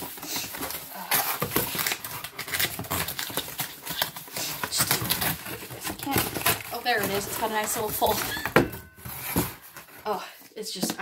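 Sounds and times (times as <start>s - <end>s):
paper and cardboard rustling: 0.0s - 11.0s.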